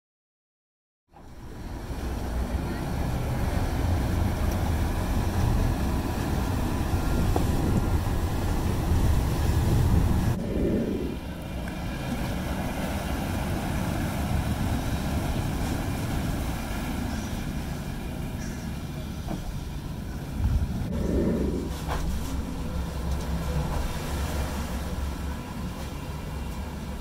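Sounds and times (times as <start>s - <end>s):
outboard engines rumbling: 1.1s - 27.0s
water churning: 1.2s - 27.0s
wind noise on microphone: 4.0s - 16.8s, 20.1s - 24.7s.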